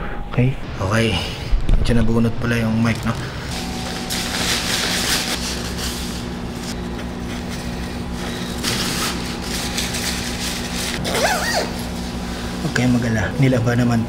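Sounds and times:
low mechanical hum: 0.0s - 14.0s
fabric coverall rustling: 3.0s - 6.8s.

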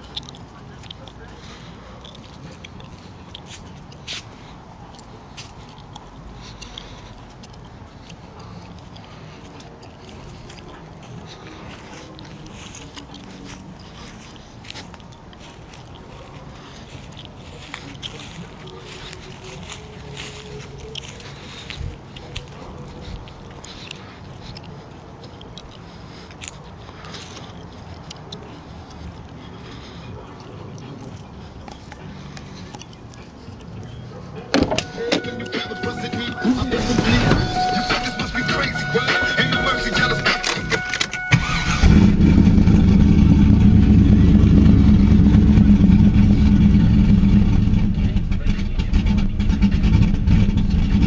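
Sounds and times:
car engine idling: 34.4s - 51.0s.

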